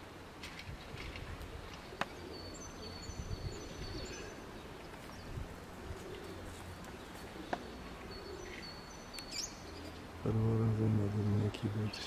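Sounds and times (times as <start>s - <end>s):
wind rumble on microphone: 0.5s - 1.7s, 3.0s - 4.1s, 5.1s - 6.0s
pigeons cooing: 1.2s - 10.8s.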